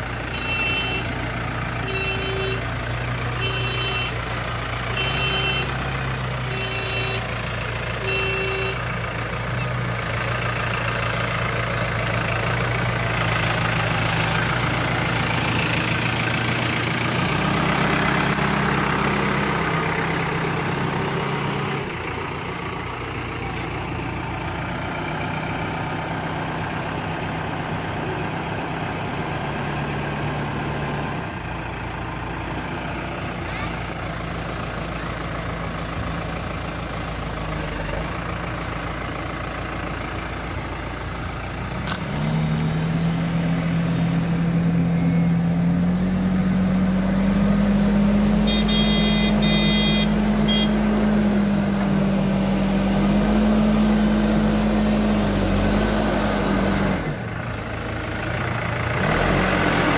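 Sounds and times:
diesel engine running: 0:00.0 - 0:59.9
reverse alarm beeping: 0:48.5 - 0:50.7.

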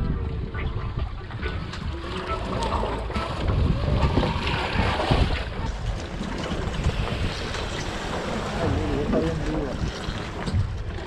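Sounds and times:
wind buffeting microphone: 0:00.0 - 0:11.0
water sloshing: 0:00.1 - 0:11.0.

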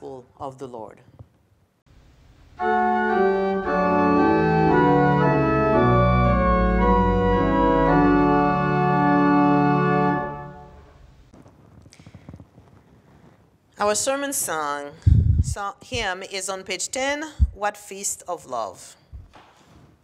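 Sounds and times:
church organ chords: 0:02.6 - 0:11.2.

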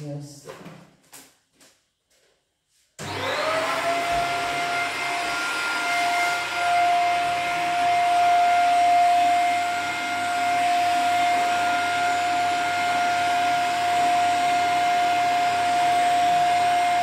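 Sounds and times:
vacuum cleaner running: 0:03.0 - 0:17.0.

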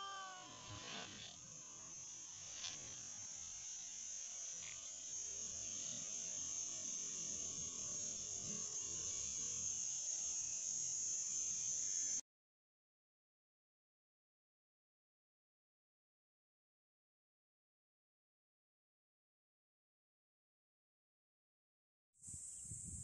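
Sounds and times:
high-pitched buzzing hiss: 0:00.0 - 0:12.2, 0:22.2 - 0:23.0.

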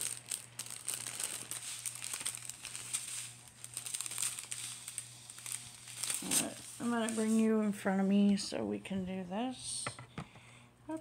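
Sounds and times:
plastic bags crinkling: 0:00.0 - 0:07.8
steady low hum: 0:00.0 - 0:11.0.

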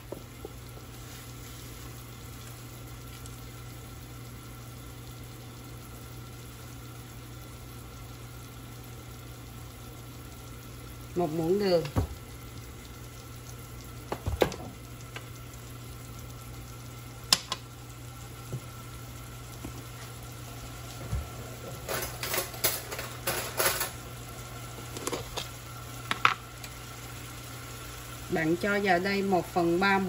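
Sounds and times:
meat sizzling in a saucepan: 0:00.0 - 0:30.0
kitchen utensils clattering: 0:21.7 - 0:24.0.

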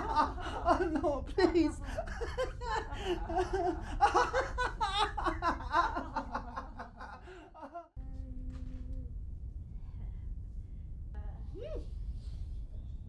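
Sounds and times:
woman laughing hard: 0:00.0 - 0:07.9
steady low hum: 0:00.0 - 0:13.0.

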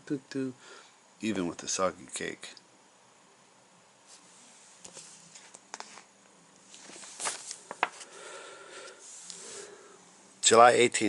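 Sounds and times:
paper pages rustling: 0:04.1 - 0:08.2.

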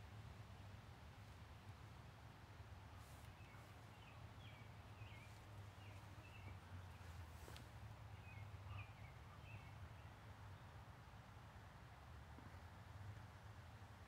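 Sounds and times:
faint bird chirps: 0:08.1 - 0:10.1.

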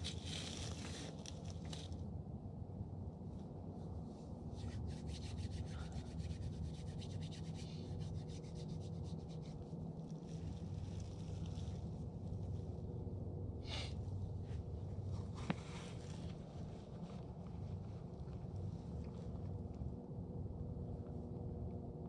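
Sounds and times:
low steady rumble: 0:00.0 - 0:22.0
hands rubbing together: 0:04.6 - 0:09.6.

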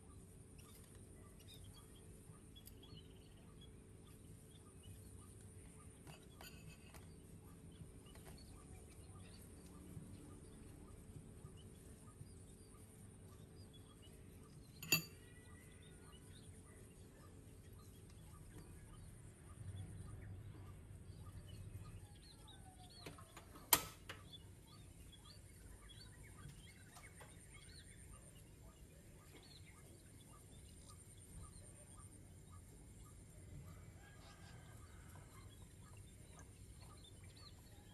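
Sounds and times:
birds chirping: 0:00.0 - 0:37.9
utensil clinking against dish: 0:06.1 - 0:07.1, 0:14.8 - 0:15.5.

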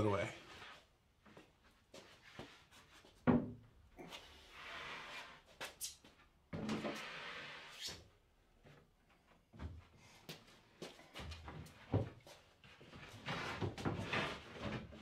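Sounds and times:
plywood scraping against wood: 0:13.0 - 0:15.0.

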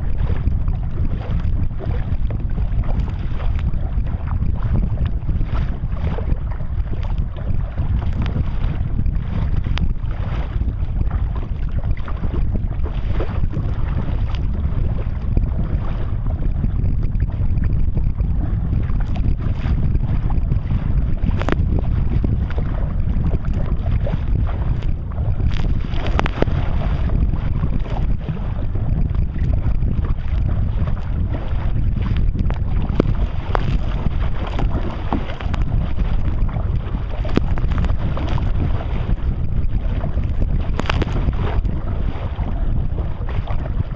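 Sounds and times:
water slapping against kayak: 0:00.0 - 0:43.9
wind buffeting microphone: 0:00.0 - 0:43.9.

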